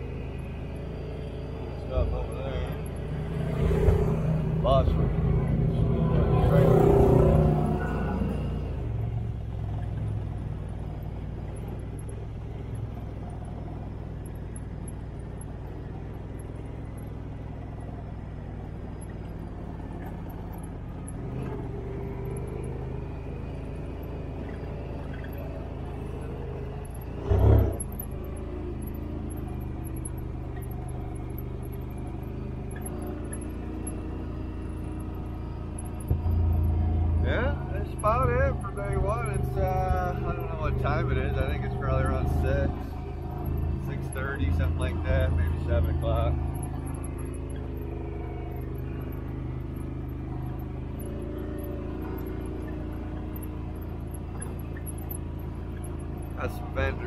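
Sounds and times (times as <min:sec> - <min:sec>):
utility vehicle engine running: 0:00.0 - 0:57.0.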